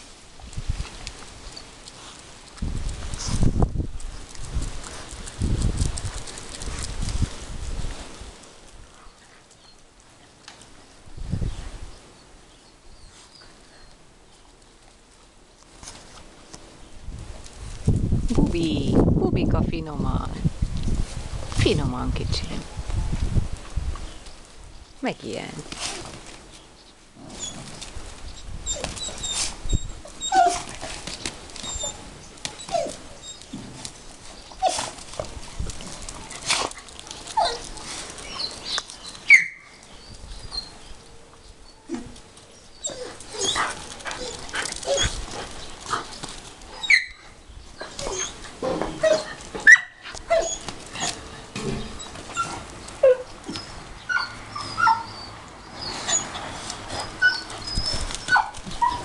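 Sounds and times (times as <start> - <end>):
dogs whimpering and yipping: 27.2 - 35.2, 36.2 - 40.8, 41.6 - 59.0.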